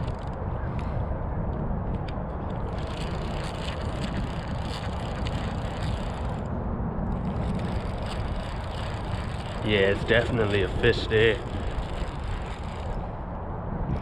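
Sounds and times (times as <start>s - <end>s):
fishing reel ticking: 0.0s - 0.4s, 2.5s - 6.5s, 7.1s - 13.1s
steady low rumble: 0.0s - 14.0s.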